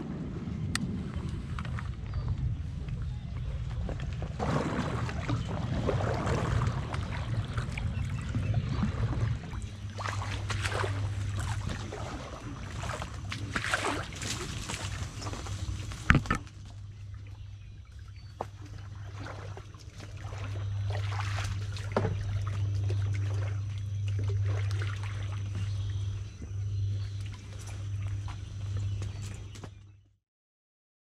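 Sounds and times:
low steady rumble: 0:00.0 - 0:30.1
paddle splashing in water: 0:03.4 - 0:17.2, 0:18.0 - 0:26.3.

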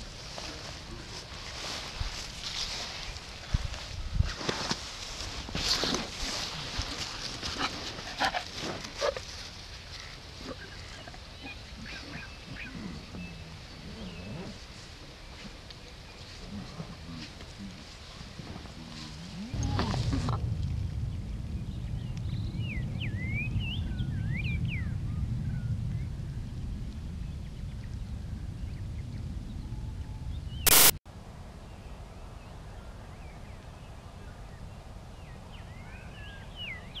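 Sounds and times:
birds chirping: 0:09.8 - 0:16.4
low rumble: 0:19.4 - 0:30.6
brief loud burst of noise: 0:30.7 - 0:31.0.

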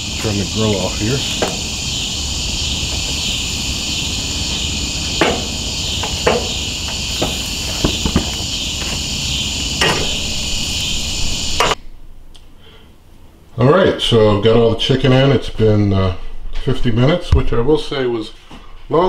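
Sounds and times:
night insects trilling: 0:00.0 - 0:11.8.

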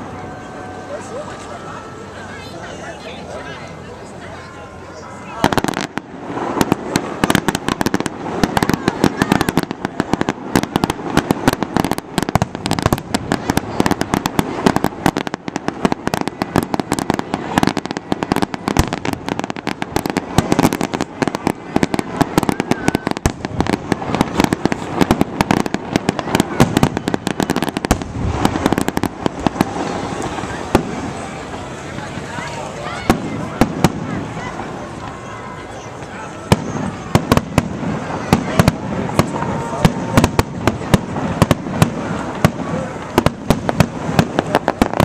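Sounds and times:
fireworks bursting and crackling: 0:00.0 - 0:45.0.

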